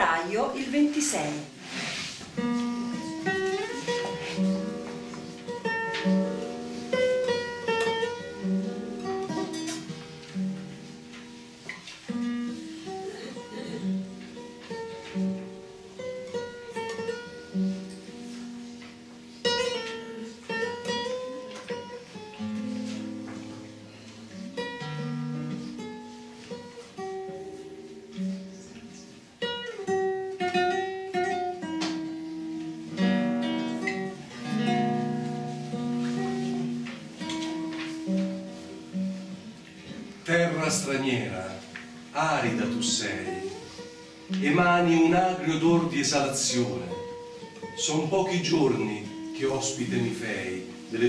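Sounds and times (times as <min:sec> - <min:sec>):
fingerstyle classical guitar: 0:00.0 - 0:51.0.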